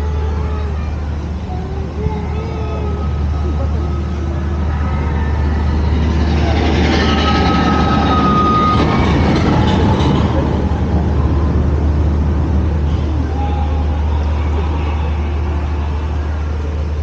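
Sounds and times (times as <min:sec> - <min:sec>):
boat machinery low rumble: 0:00.0 - 0:17.0
rattling rushing sound: 0:04.4 - 0:13.1.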